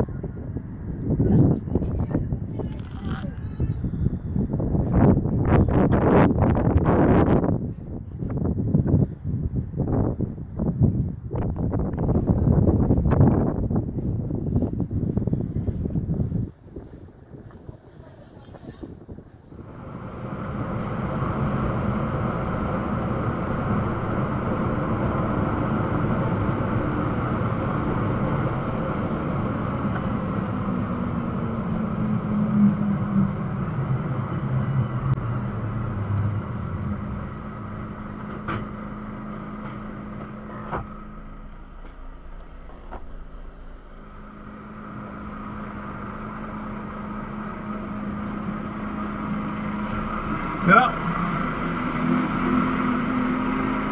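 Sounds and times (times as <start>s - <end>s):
road noise: 0.0s - 53.9s
truck engine: 19.1s - 53.9s.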